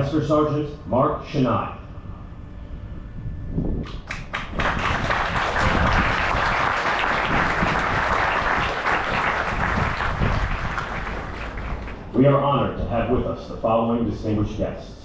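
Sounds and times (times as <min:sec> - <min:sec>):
audience applauding: 0:03.9 - 0:12.1.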